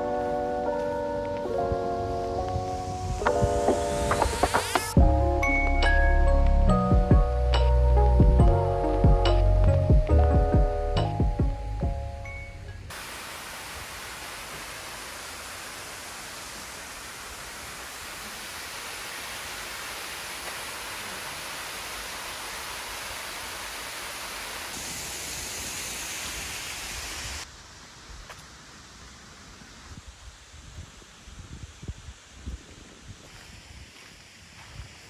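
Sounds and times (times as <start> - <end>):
music notes: 0.0 - 12.9.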